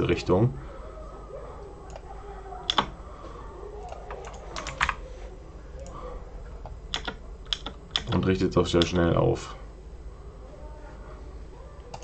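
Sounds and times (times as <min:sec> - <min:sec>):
computer keyboard clicks: 0:02.7 - 0:02.9, 0:03.9 - 0:05.0, 0:06.9 - 0:08.2.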